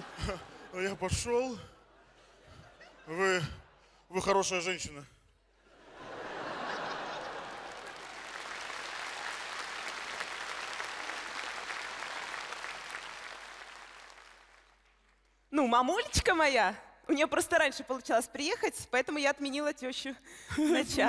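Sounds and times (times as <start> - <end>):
audience applauding: 6.4 - 15.4.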